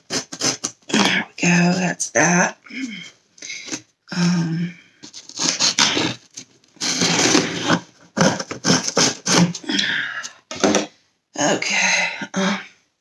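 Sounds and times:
knife slitting packing tape: 0.1s - 0.8s, 5.2s - 6.2s.

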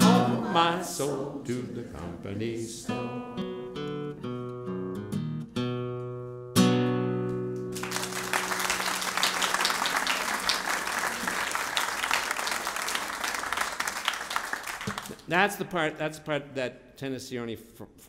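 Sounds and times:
classical guitar chord strummed: 3.0s - 7.8s
audience applauding: 7.7s - 15.2s.

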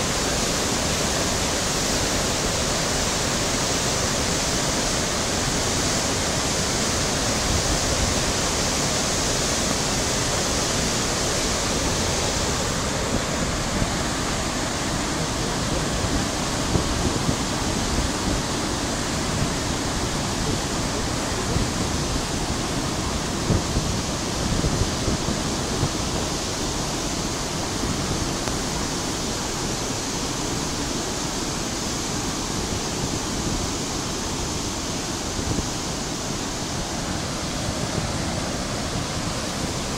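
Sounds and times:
water rushing through dam gate: 0.0s - 39.9s.

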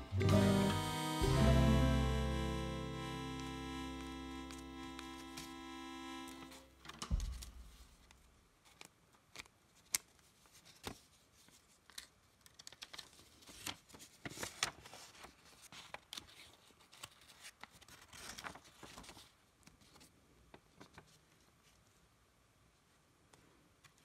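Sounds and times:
paper rustling and crinkling: 7.1s - 22.0s.

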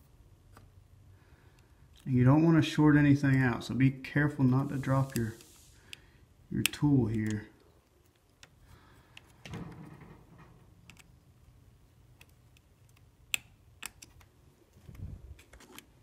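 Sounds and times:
clicks and taps of probe leads: 5.9s - 9.4s.

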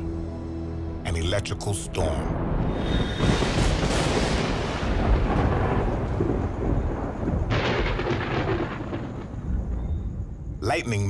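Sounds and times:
sharp thunder peal: 2.3s - 10.0s
thunder rumbling: 2.3s - 11.0s.

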